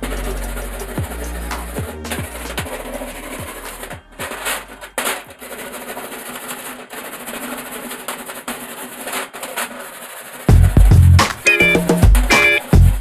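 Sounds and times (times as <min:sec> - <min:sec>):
background music: 0:00.0 - 0:05.0, 0:10.5 - 0:13.0
wire brush scrubbing steel: 0:00.0 - 0:10.6.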